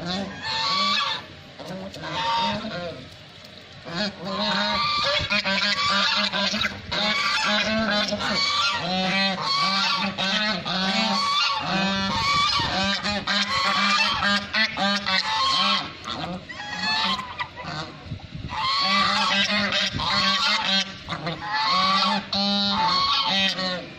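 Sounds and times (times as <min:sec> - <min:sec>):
geese honking: 0:00.0 - 0:03.0, 0:03.8 - 0:23.9.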